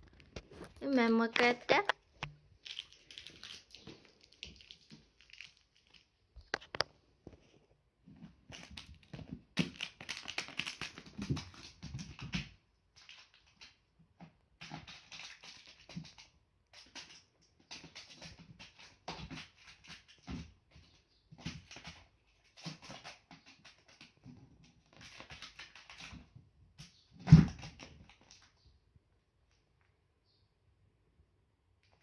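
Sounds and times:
candy wrapper crinkling: 0.0s - 6.8s, 8.7s - 11.2s.

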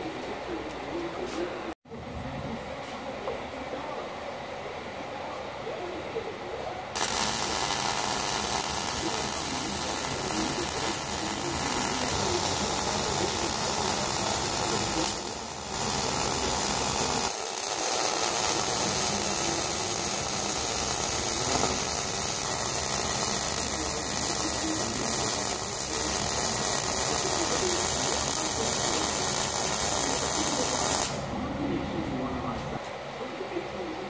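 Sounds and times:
welding arc hissing crackle: 7.0s - 31.3s.

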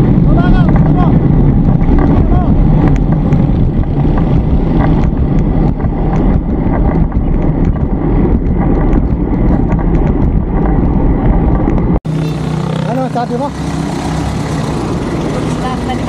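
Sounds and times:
wind buffeting microphone: 0.0s - 12.8s
road traffic rumble: 0.0s - 16.0s.

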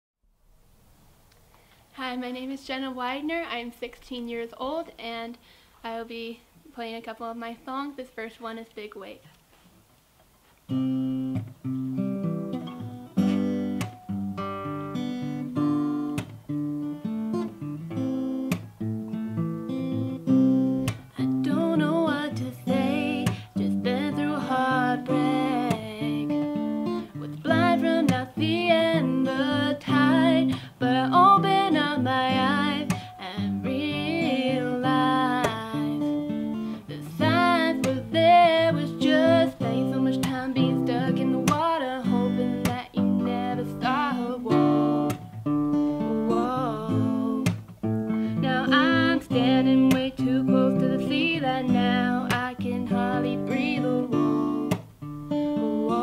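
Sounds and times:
acoustic guitar strumming: 10.7s - 56.0s
young woman singing: 20.8s - 56.0s.

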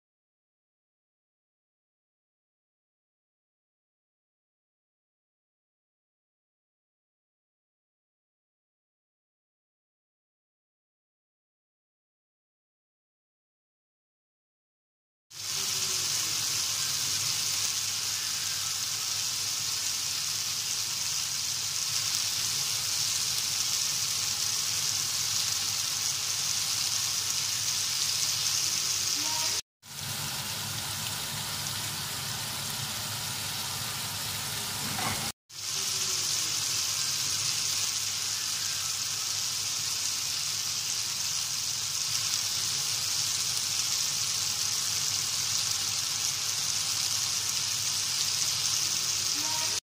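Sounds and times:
meat sizzling on griddle: 15.3s - 49.8s.

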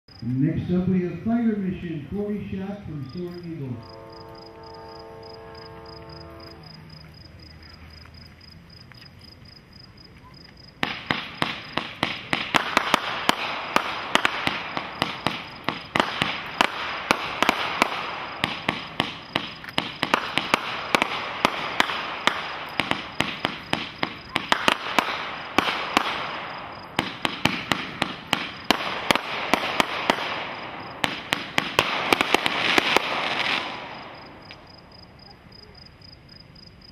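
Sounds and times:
fireworks crackling bursts: 0.4s - 6.9s, 10.7s - 36.0s
fireworks launch pops: 10.8s - 34.7s.

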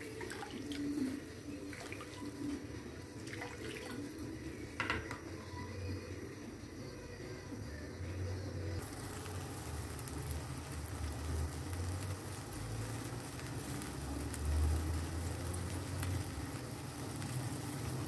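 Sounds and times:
bubbles hissing and crackling: 0.0s - 5.1s, 8.8s - 18.0s
water heating in a wok: 0.0s - 18.0s.

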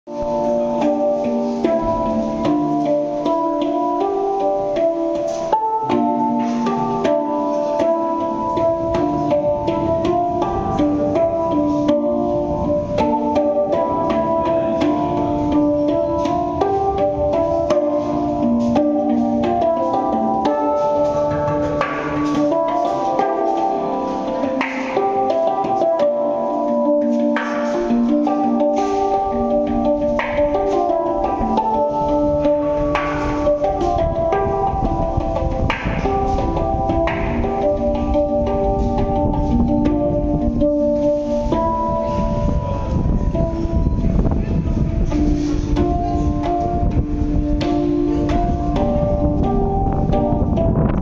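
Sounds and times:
handpan melody: 0.1s - 51.0s.

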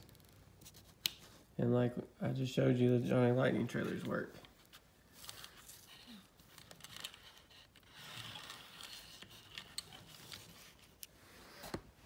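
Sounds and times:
toy vehicle rolling rustle: 5.2s - 10.9s.

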